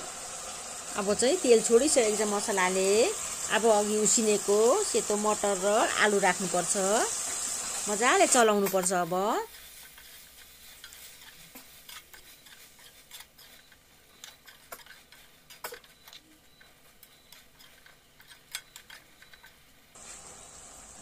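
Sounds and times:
gas flame hiss: 0.0s - 11.7s, 20.0s - 21.0s
metal spoon scraping pan: 1.6s - 19.6s.

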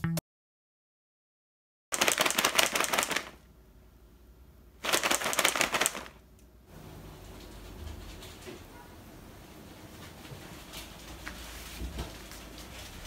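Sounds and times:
cat treats rattling in pouch: 2.0s - 3.4s, 4.8s - 6.2s.

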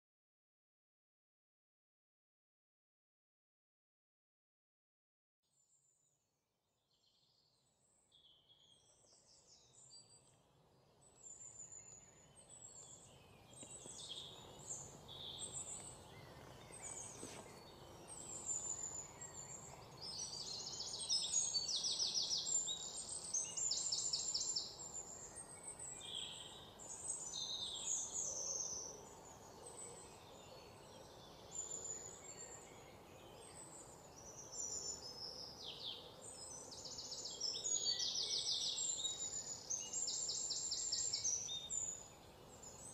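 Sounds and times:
birds chirping and trilling: 7.3s - 42.9s
steady low hiss: 9.2s - 37.8s, 38.5s - 42.9s.

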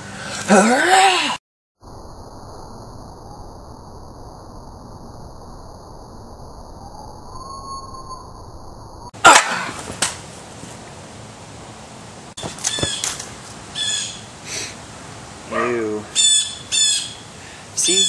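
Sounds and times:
faint high steady tones: 1.8s - 9.1s
background hiss: 9.2s - 18.0s.

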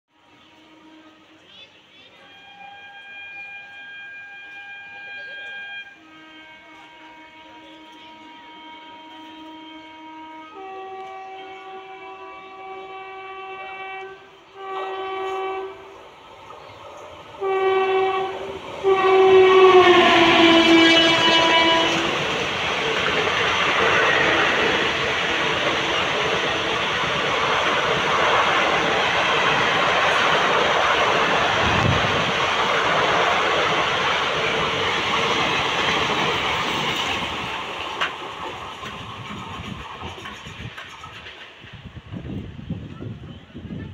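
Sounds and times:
train passing on rails: 0.1s - 43.9s
locomotive horn blasts: 0.2s - 1.5s, 2.1s - 16.0s, 17.3s - 32.3s.

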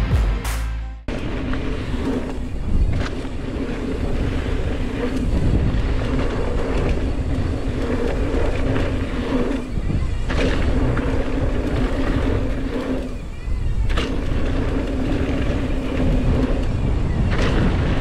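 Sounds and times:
intro music: 0.0s - 1.1s
bike tyres rolling on dirt: 1.1s - 18.0s
wind rushing on microphone: 1.1s - 18.0s.

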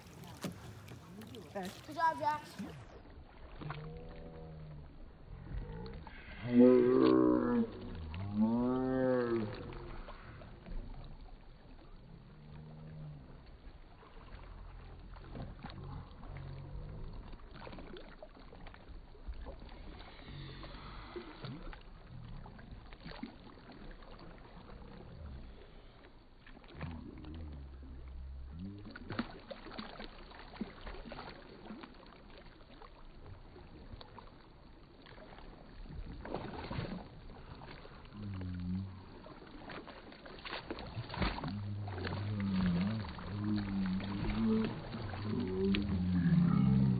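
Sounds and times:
paddle splashing in water: 0.0s - 46.9s
low background rumble: 40.9s - 46.9s.

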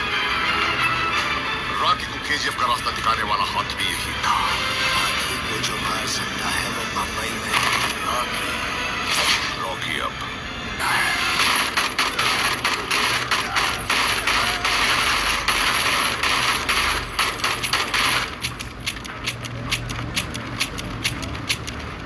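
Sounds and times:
rapid metallic clicks: 11.4s - 22.0s.

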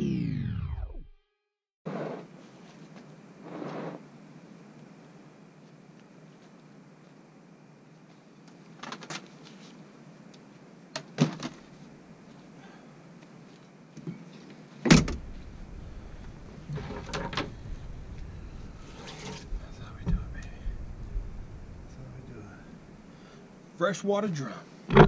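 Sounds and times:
close rustling: 14.3s - 23.5s
low rumble on tailgate: 14.9s - 23.0s.

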